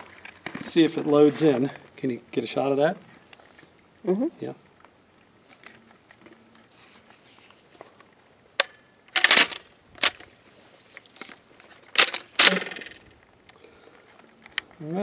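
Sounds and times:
shotgun pump metallic clacks: 0:12.0 - 0:13.0.

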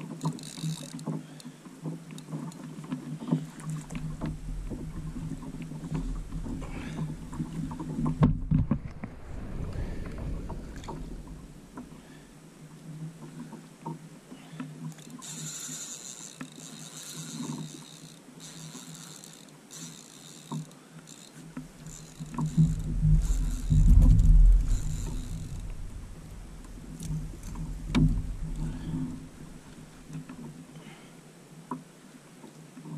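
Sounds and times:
fishing reel drag buzzing: 0:00.0 - 0:01.5, 0:02.1 - 0:08.2, 0:14.6 - 0:30.5
water sloshing against kayak hull: 0:00.0 - 0:15.0, 0:21.4 - 0:30.8
low wind rumble: 0:03.8 - 0:13.0, 0:21.7 - 0:30.5.

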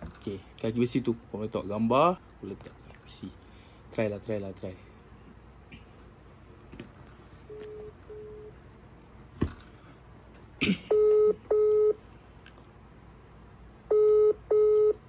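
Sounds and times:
telephone ringback tone: 0:07.5 - 0:08.5, 0:10.9 - 0:12.0, 0:13.9 - 0:15.0.

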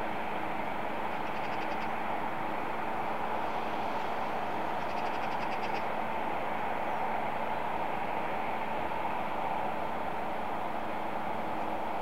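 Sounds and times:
jet engines running: 0:00.0 - 0:12.0
faint rapid high chirping: 0:01.2 - 0:01.9, 0:04.8 - 0:05.9.

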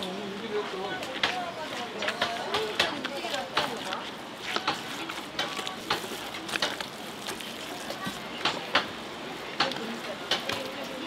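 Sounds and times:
faint voices: 0:00.0 - 0:11.0.

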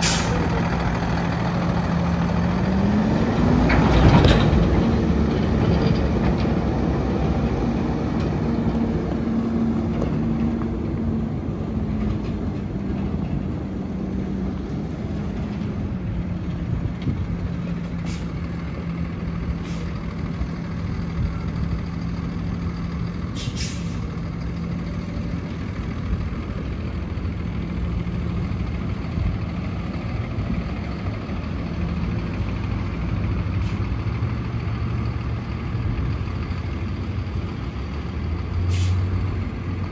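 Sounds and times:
air brake hisses: 0:00.0 - 0:00.4, 0:17.9 - 0:18.4, 0:19.6 - 0:20.0, 0:23.3 - 0:24.1, 0:38.6 - 0:39.1
diesel truck driving away: 0:00.0 - 0:39.9.

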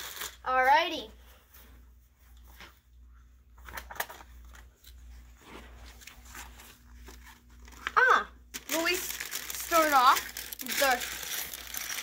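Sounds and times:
paper rustling and clicking: 0:03.6 - 0:05.0, 0:05.9 - 0:12.0.

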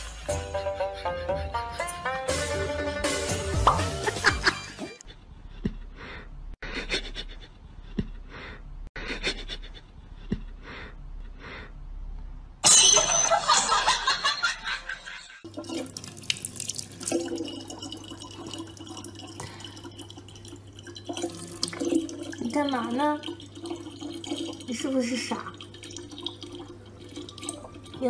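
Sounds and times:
tap water running into bottle: 0:15.5 - 0:28.0.

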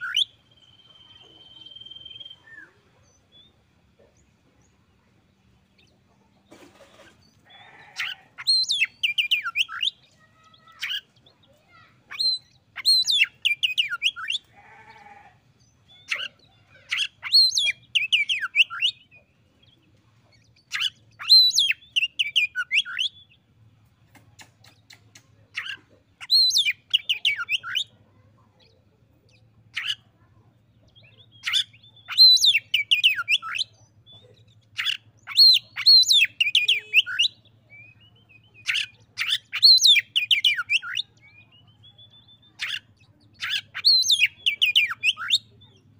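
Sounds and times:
bird singing whistled phrases: 0:00.0 - 0:02.8, 0:34.8 - 0:42.8.

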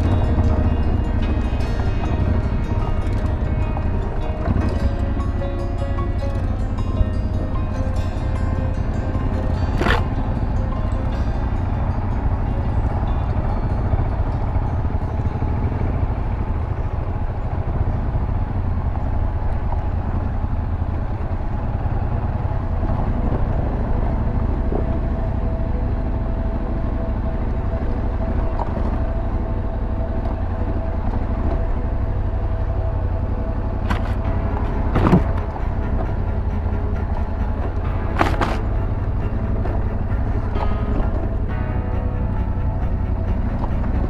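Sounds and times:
motorcycle engine running: 0:00.0 - 0:44.0.

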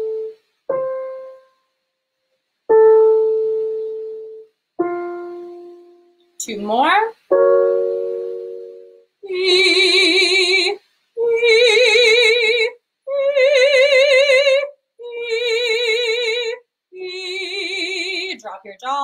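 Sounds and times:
keyboard chord: 0:00.0 - 0:01.5, 0:02.7 - 0:06.2, 0:07.3 - 0:09.1
woman singing held notes: 0:14.6 - 0:19.0.

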